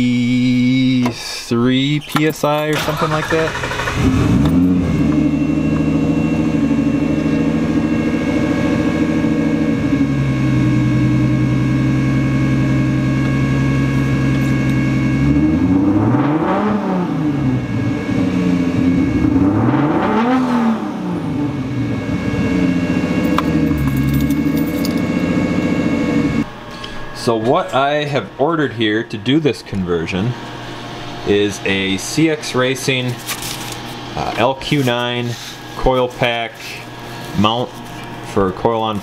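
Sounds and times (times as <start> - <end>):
car engine idling and revving: 2.7 - 26.5.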